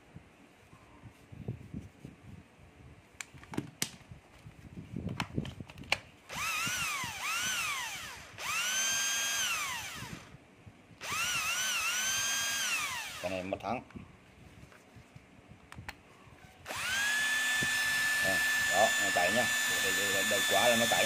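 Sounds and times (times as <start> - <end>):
cordless drill motor running: 6.3 - 10.4, 11.0 - 13.6, 16.6 - 21.0.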